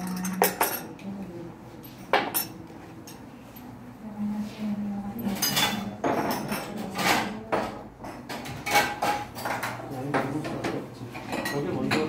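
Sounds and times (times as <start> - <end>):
cups and glasses clinking: 0.0 - 1.0, 5.3 - 10.2, 11.2 - 12.0.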